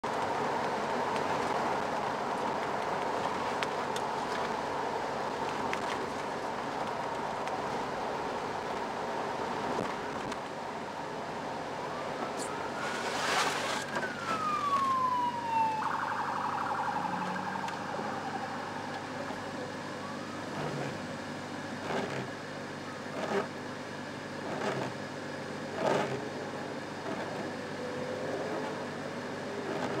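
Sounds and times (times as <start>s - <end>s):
road noise in rain: 0.0s - 30.0s
muffled police siren: 11.6s - 23.9s, 25.8s - 30.0s.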